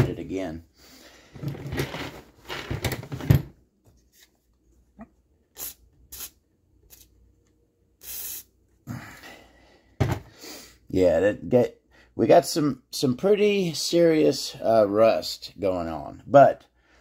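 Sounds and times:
aerosol spray hissing: 5.6 - 7.1, 8.0 - 8.5.

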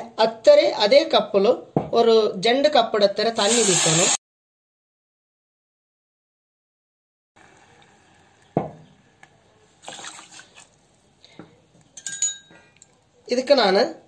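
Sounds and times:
water pouring splashing: 9.8 - 10.8.

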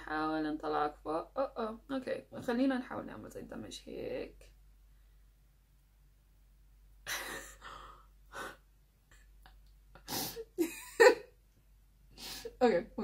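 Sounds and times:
woman's breathy laughter: 7.1 - 8.6.

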